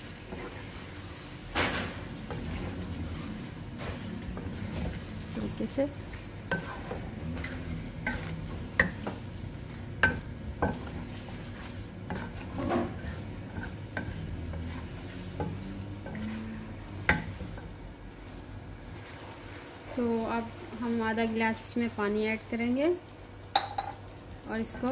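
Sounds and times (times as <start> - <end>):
low sizzle of frying: 0.0 - 24.9
spatula scraping a metal pan: 6.5 - 9.2, 10.1 - 16.6.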